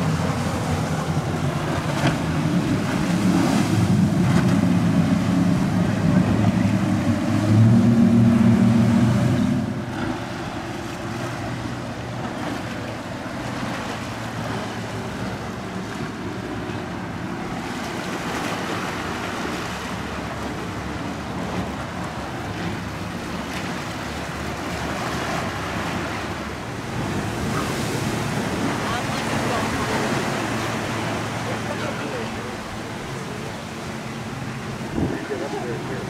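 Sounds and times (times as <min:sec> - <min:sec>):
boat engines running: 0:00.0 - 0:36.0
surf: 0:00.0 - 0:36.0
wind: 0:00.0 - 0:36.0.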